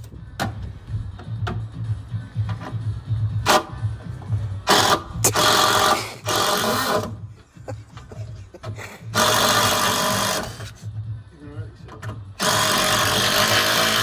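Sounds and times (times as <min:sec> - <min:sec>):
cordless drill driving screws: 0:04.7 - 0:07.1, 0:09.1 - 0:10.6, 0:12.4 - 0:14.0.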